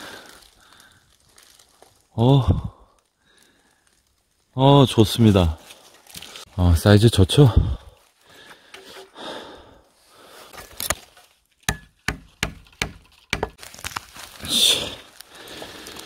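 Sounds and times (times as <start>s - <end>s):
blade chopping hard fungus: 11.7s - 14.0s.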